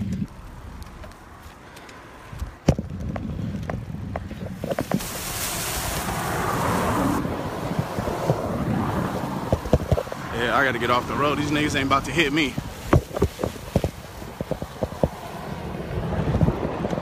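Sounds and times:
low rumble: 0.0 - 11.2
wind rushing over microphone: 0.0 - 17.0.

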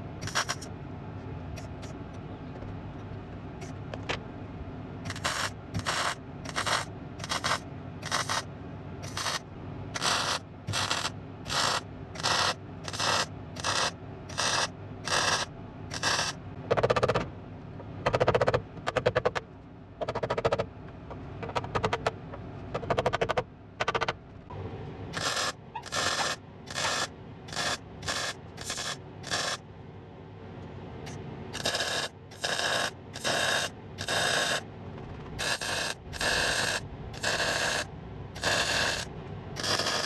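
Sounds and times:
mig welder arc bursts: 0.2 - 0.7, 5.1 - 9.4, 10.0 - 16.4, 25.1 - 29.6, 31.6 - 34.6, 35.4 - 40.0.

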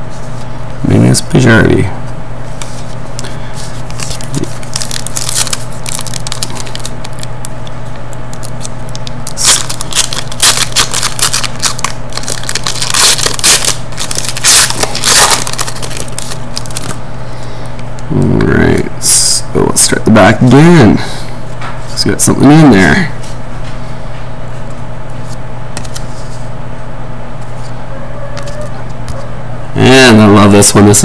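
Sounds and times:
steady low hum: 0.0 - 31.0
foil wrapper crinkling and tearing: 3.2 - 17.0
packs rustling: 3.9 - 7.3, 9.3 - 17.0.

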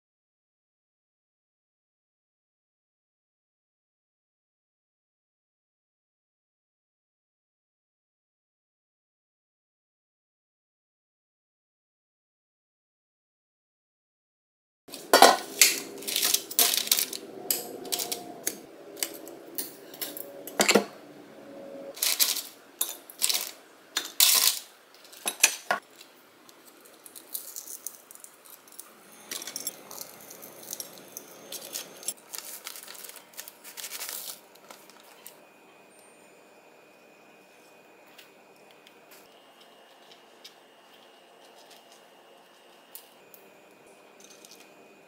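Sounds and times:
rustling: 29.3 - 35.3.

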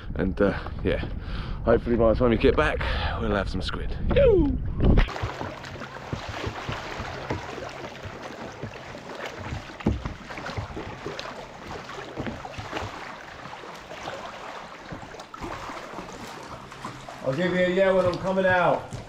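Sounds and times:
water sloshing and splashing: 4.7 - 19.0.

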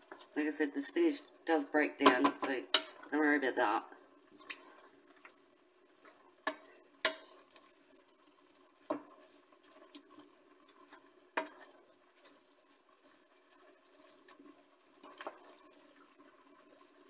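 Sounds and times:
food sizzling: 0.0 - 17.0
spoon stirring in a pan: 0.0 - 17.0
spoon knocking against pan: 6.5 - 7.4.

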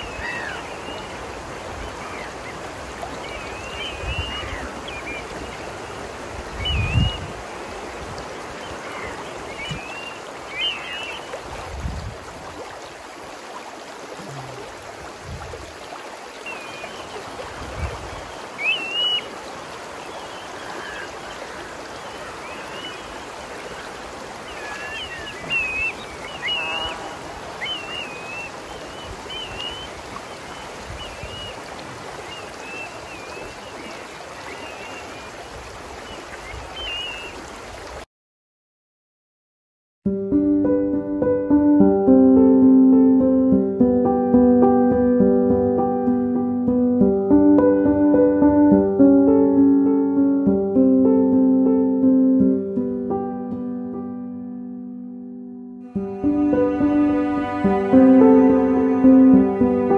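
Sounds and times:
river rushing over stones: 0.0 - 38.0.

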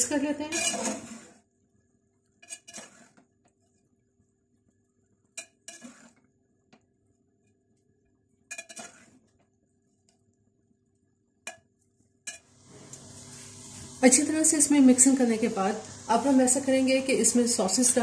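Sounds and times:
metal spoon clinking in pot: 5.4 - 5.9, 8.5 - 8.9, 12.3 - 12.5.

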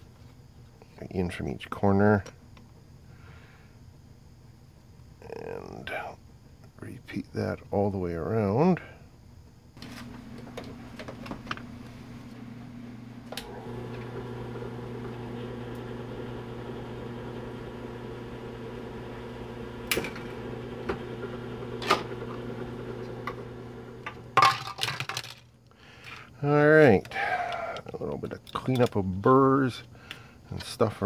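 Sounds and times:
drill press motor humming: 9.8 - 24.4
drilling through plastic: 13.3 - 24.4.

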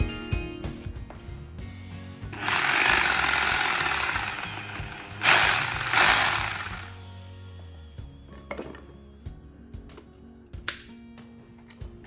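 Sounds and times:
rotary hammer motor whine: 2.4 - 7.0.

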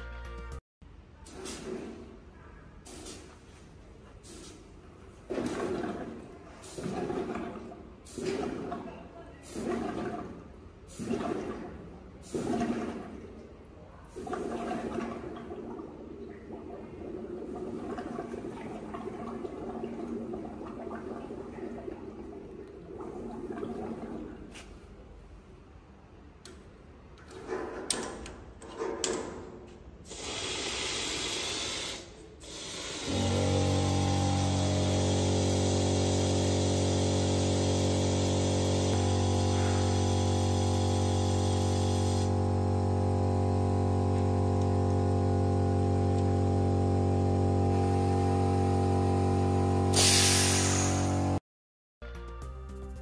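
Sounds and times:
electric water pump humming: 5.3 - 8.9, 9.6 - 10.4, 12.3 - 13.2, 14.2 - 24.5, 32.4 - 51.4
compressed air hiss: 30.1 - 33.3, 49.9 - 51.2.

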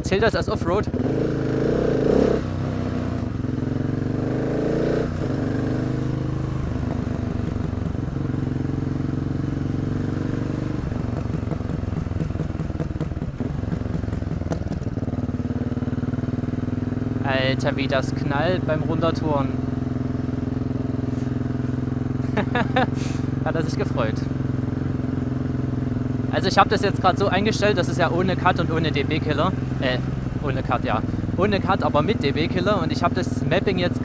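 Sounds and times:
motorcycle engine revving: 0.0 - 34.0
exhaust pops and crackles: 10.5 - 15.2.

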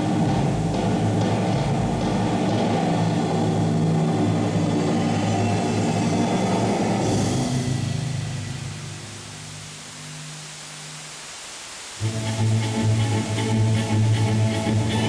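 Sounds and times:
bass-heavy music over loudspeakers: 0.0 - 7.7.

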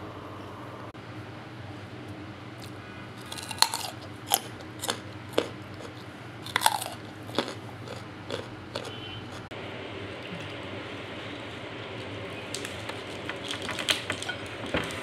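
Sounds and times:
carrot crunching: 2.6 - 9.4.

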